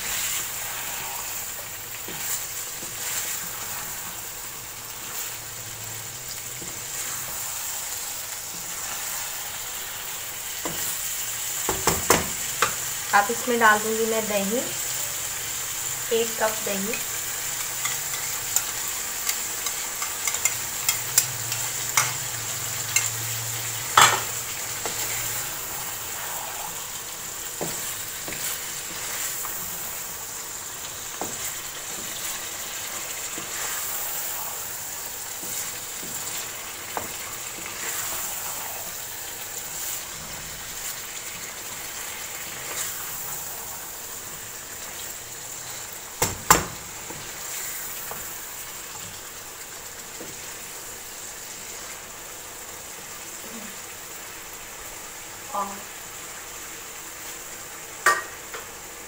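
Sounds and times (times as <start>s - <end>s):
meat and potatoes sizzling: 0.0s - 59.0s
spatula scraping and tapping pan: 16.9s - 22.2s, 27.6s - 29.7s, 31.1s - 32.4s.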